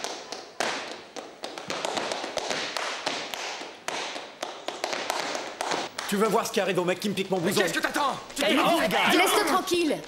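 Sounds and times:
hard shoes tapping on wooden floor: 0:00.0 - 0:06.2.

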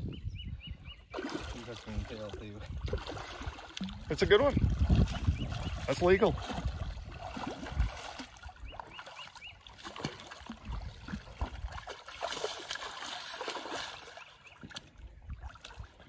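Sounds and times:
fish thrashing and splashing: 0:01.2 - 0:16.0.

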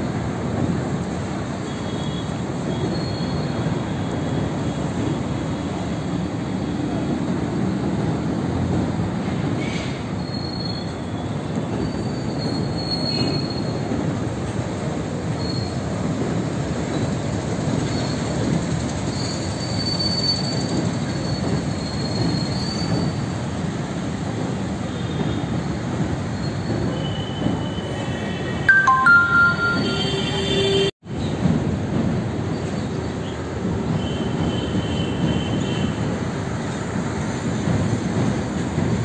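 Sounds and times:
train rumbling over bridge: 0:00.0 - 0:39.0
high wheel squeal: 0:01.7 - 0:05.1, 0:09.6 - 0:13.9, 0:15.3 - 0:16.0, 0:17.8 - 0:23.4, 0:26.2 - 0:28.5.

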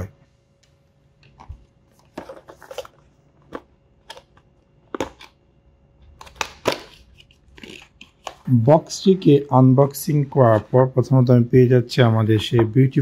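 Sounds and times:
packaging rustling: 0:01.3 - 0:05.1.

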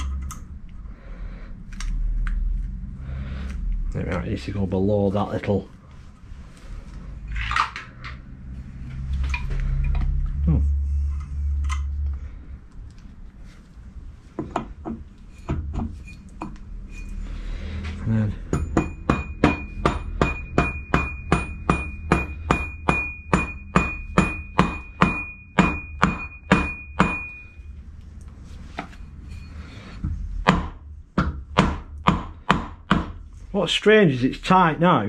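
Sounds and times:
hammer knocking on metal pulley: 0:18.5 - 0:27.3.

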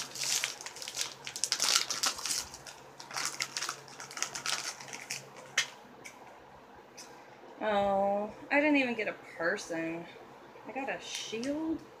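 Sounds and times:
plastic packet crinkling: 0:00.0 - 0:05.7.

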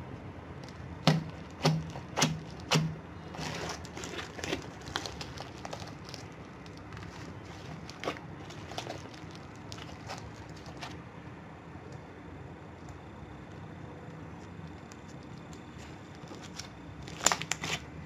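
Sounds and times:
crunchy slime crackling: 0:00.6 - 0:11.0, 0:12.7 - 0:18.0.

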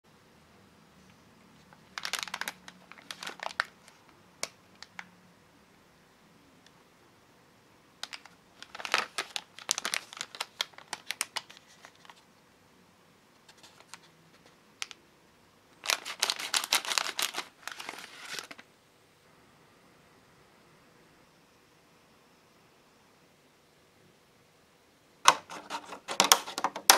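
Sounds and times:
plastic packaging crinkling: 0:01.6 - 0:05.1, 0:08.0 - 0:12.2, 0:13.5 - 0:15.0, 0:15.8 - 0:18.7.

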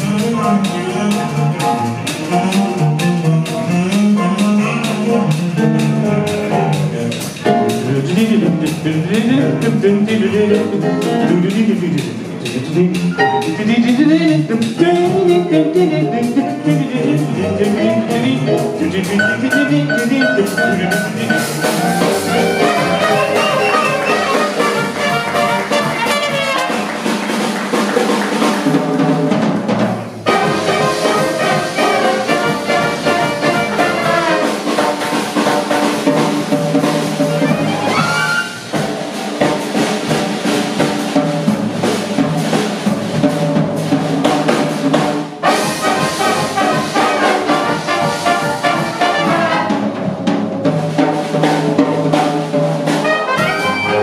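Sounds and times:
double bass: 0:00.0 - 0:27.4, 0:28.8 - 0:54.0
drum kit: 0:00.0 - 0:54.0
trombone: 0:12.5 - 0:28.7, 0:30.2 - 0:54.0
trumpet: 0:19.0 - 0:27.3, 0:30.2 - 0:36.3, 0:37.4 - 0:38.8, 0:45.4 - 0:50.1, 0:52.9 - 0:54.0
clarinet: 0:19.2 - 0:26.9, 0:30.2 - 0:35.0, 0:37.3 - 0:38.7, 0:53.0 - 0:54.0.

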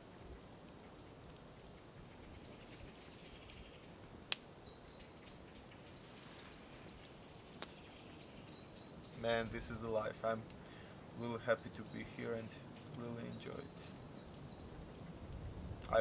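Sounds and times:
campfire popping: 0:00.0 - 0:16.0
small songbird singing: 0:02.2 - 0:10.4, 0:11.2 - 0:15.0.

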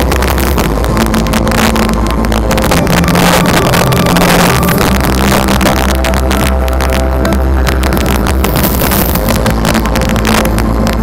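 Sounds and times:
fireworks bangs and crackling: 0:00.0 - 0:11.0
loud music from sound system: 0:00.0 - 0:11.0.

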